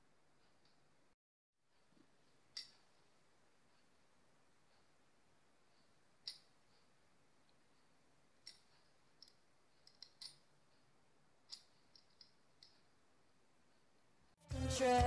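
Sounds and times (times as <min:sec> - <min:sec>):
faint metallic clicks and taps: 0:01.7 - 0:13.0.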